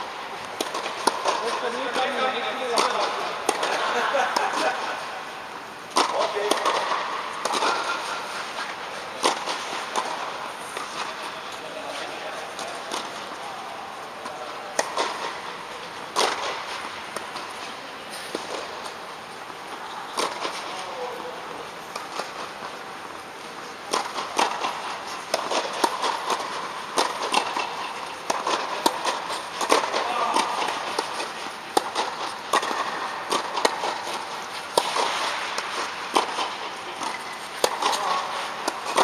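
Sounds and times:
tennis balls struck and bouncing: 0.4 - 39.0.

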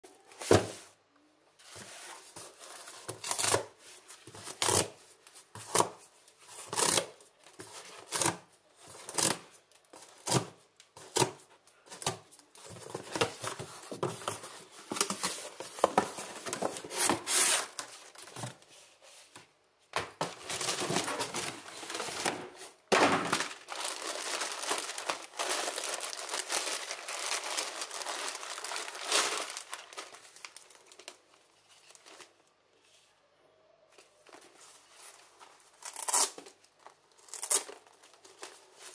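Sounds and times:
cardboard rustling: 10.0 - 32.3
plastic bag crinkling: 20.3 - 32.3.

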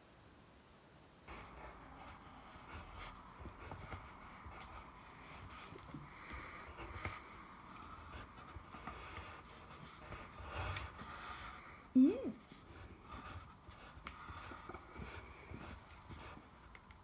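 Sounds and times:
pencils scratching on paper: 1.3 - 17.0
person's short vocal sound: 12.0 - 12.4.

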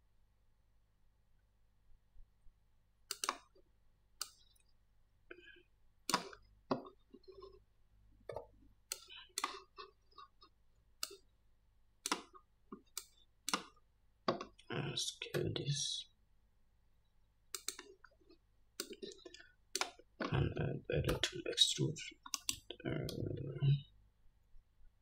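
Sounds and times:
mouse and keyboard clicking: 3.1 - 3.5, 6.1 - 6.4, 12.0 - 13.8, 17.5 - 18.0, 22.3 - 23.2.

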